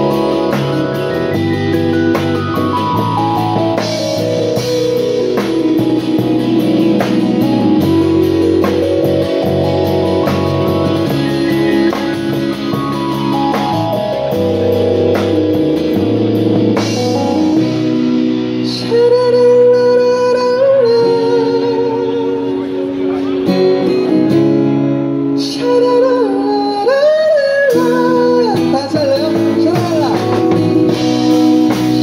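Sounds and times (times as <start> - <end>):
live pop-rock band playing: 0.0 - 32.0.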